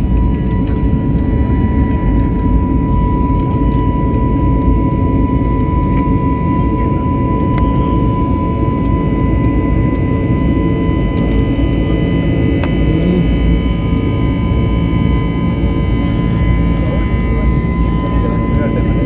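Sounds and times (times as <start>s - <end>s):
airliner engines and rushing air: 0.0s - 19.0s
high whine: 0.0s - 19.0s.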